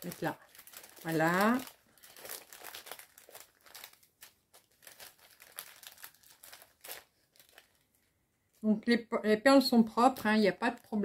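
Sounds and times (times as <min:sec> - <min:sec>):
plastic bags crinkling: 0:00.0 - 0:08.1.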